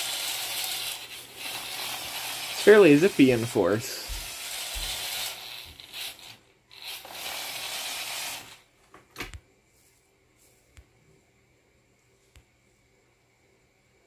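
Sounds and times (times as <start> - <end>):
toy motors whirring: 0.0 - 8.7.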